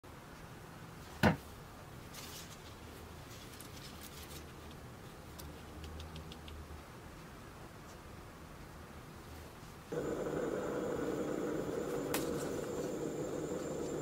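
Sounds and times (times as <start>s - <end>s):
lemons rustling in wicker basket: 2.1s - 4.6s
small ticks: 5.4s - 6.6s.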